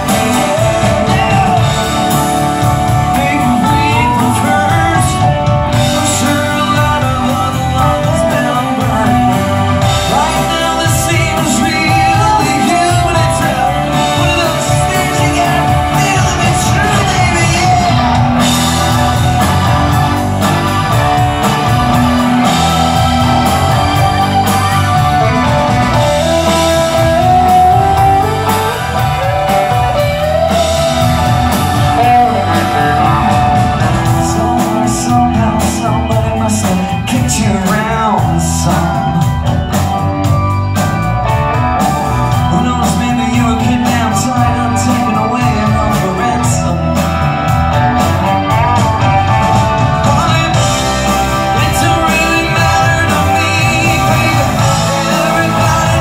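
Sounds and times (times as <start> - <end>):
bending guitar lead line: 0.0 - 56.0
live rock band playing: 0.0 - 56.0.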